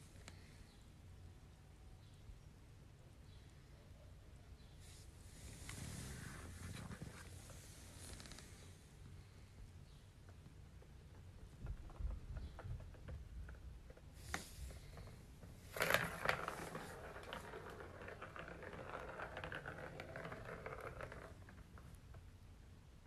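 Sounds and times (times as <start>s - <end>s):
ball rolling in plastic track: 10.4s - 22.5s.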